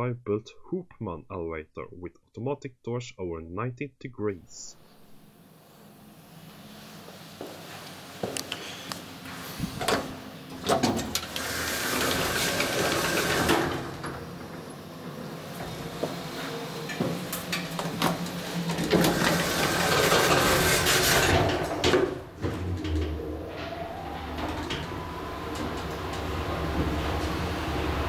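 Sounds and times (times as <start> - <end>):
elevator door mechanism running: 9.4 - 28.0
elevator door clicks: 21.2 - 28.0.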